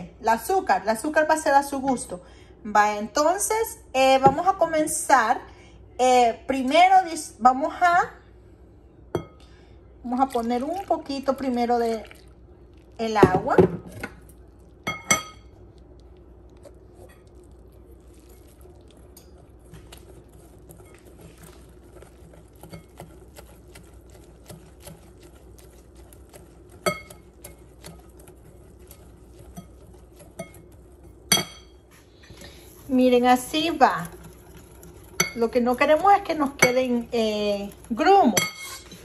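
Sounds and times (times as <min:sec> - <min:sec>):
utensil scraping glass bowl: 0:16.6 - 0:39.0.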